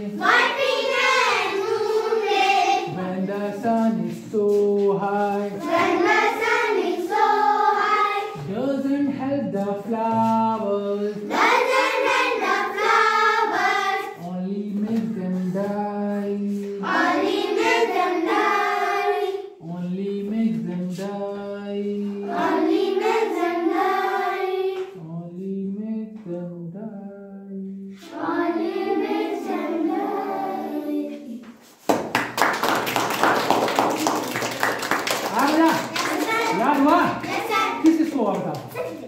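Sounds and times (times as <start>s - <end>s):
children singing in unison: 0.0s - 3.6s, 5.5s - 8.5s, 11.1s - 14.2s, 16.6s - 19.6s, 21.8s - 25.0s, 28.0s - 31.4s
children clapping: 31.9s - 39.0s.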